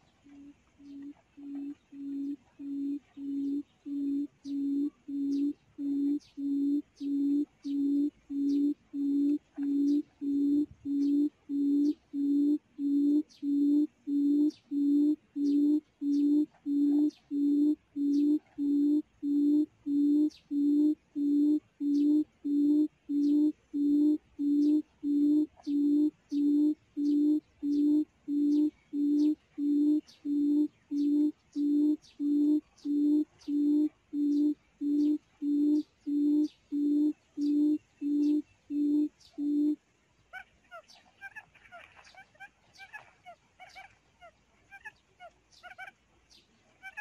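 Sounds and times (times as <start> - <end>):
quail call through loudspeaker: 40.3 - 46.0, 46.8 - 47.0.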